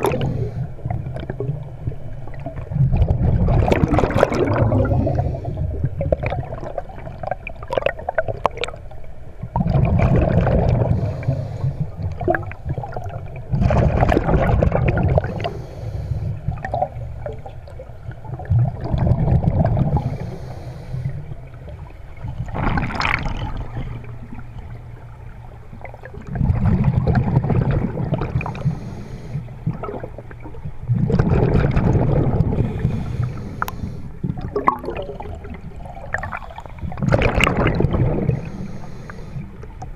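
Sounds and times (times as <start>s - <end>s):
exhaled bubbles underwater: 0.0s - 39.9s
inhalations through regulator: 38.3s - 39.5s.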